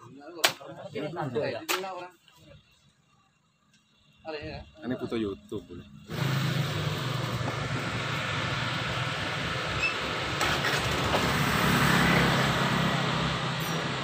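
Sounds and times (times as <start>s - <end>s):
engine hum: 2.8s - 14.0s.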